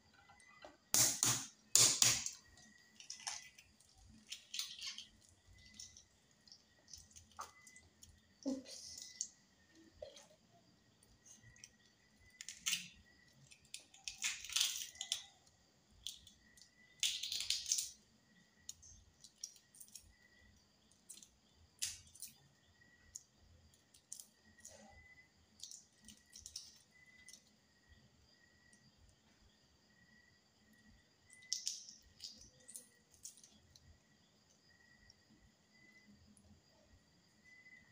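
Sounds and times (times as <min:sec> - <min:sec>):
egg shell cracking and peeling: 0:00.9 - 0:10.3, 0:11.1 - 0:24.8, 0:25.5 - 0:27.6, 0:31.3 - 0:34.0.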